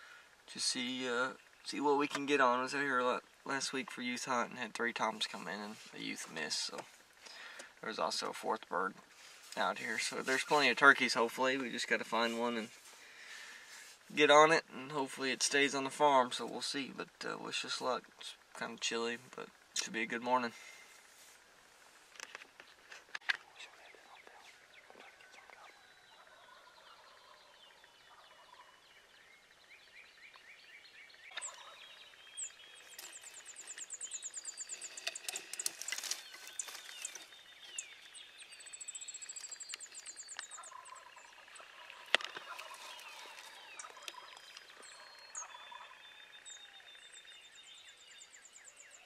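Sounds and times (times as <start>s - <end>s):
songbirds singing: 0.0s - 49.0s
distant turkey gobbling: 23.9s - 30.6s, 31.2s - 35.0s, 38.7s - 47.2s.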